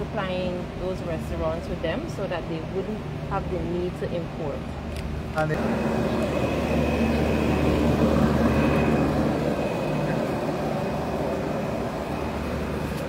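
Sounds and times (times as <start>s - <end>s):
ventilation fans humming: 0.0s - 13.0s.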